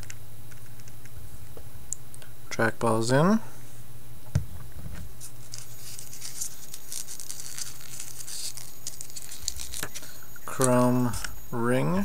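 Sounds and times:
steady low hum: 0.0s - 12.0s
plastic phone parts scratching: 5.5s - 11.4s.

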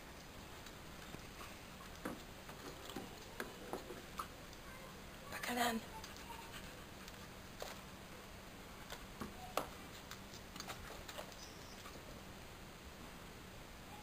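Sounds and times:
dog claws clicking on paving: 8.8s - 12.0s.

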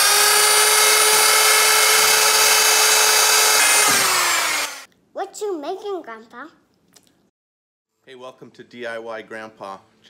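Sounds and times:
wood router motor whining: 0.0s - 4.9s.

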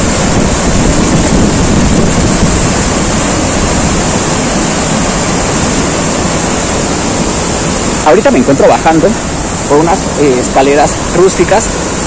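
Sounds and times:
river and waterfall rushing: 0.0s - 12.0s.

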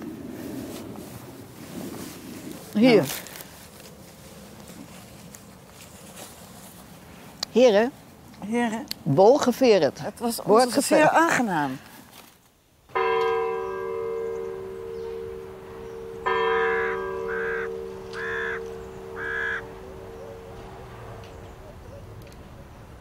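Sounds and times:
bell ringing: 13.0s - 21.6s
short calls: 13.5s - 22.8s.

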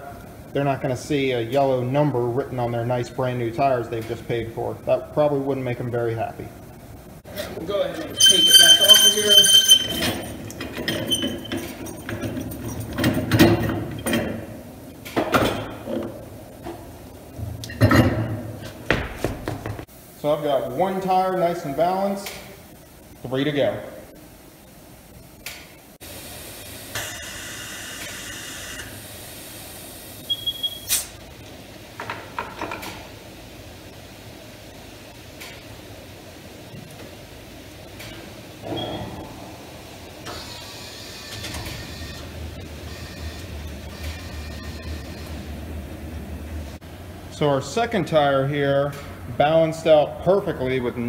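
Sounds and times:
short electronic beep: 8.2s - 10.2s.

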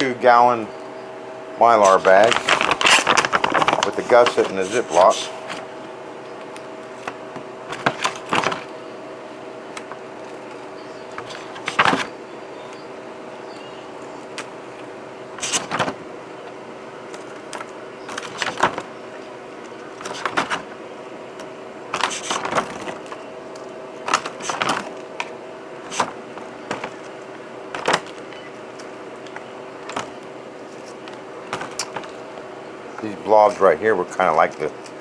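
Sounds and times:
steady hum: 0.0s - 35.0s
crinkles and rattles of dry pieces: 1.8s - 5.7s.

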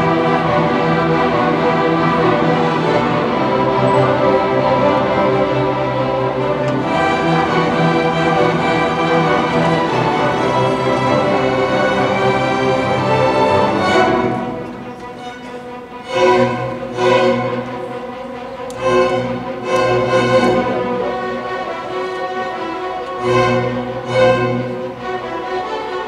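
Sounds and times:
string orchestra playing chords: 0.0s - 26.0s.

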